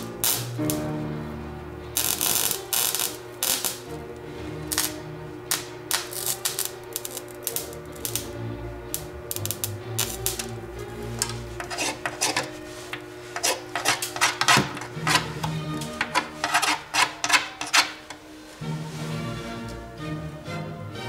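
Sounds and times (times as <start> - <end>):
electric sparks crackling: 0.0 - 1.0, 2.0 - 4.0, 4.6 - 18.2.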